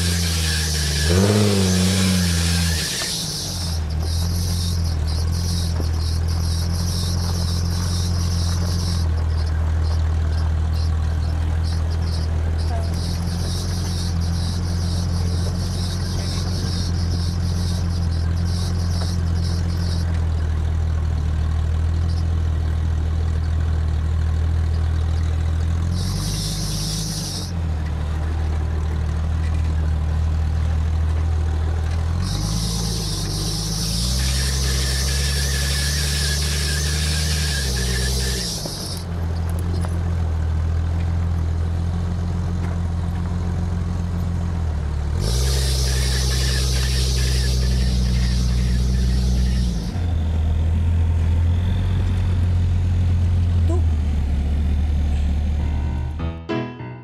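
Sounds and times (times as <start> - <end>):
loud hiss: 0.0 - 4.3, 32.3 - 39.0, 45.2 - 49.9
thin high squeal: 0.0 - 20.1, 25.9 - 27.6, 32.2 - 39.5, 45.2 - 50.2
vehicle engine running: 0.0 - 56.2.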